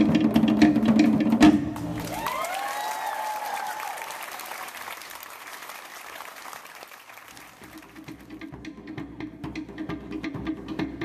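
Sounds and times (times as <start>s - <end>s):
crowd applauding: 1.8s - 8.4s
person whooping: 2.0s - 4.8s.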